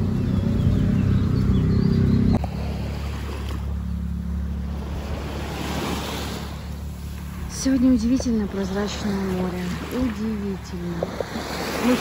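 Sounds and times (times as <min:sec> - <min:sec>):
wave breaking: 0:02.3 - 0:12.0
small waves washing on sand: 0:04.6 - 0:12.0.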